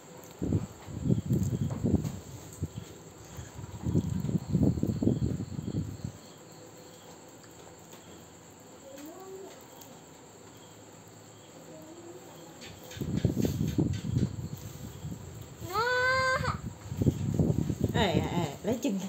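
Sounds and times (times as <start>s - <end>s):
crickets chirping: 0.0s - 19.0s
low rustling and thumping: 0.4s - 6.0s, 16.7s - 18.7s.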